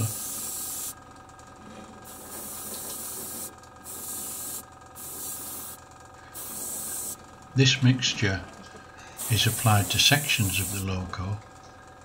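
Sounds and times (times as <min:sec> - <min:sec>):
airbrush spraying hiss: 0:00.0 - 0:01.0, 0:02.1 - 0:05.8, 0:06.4 - 0:07.2, 0:09.2 - 0:10.9.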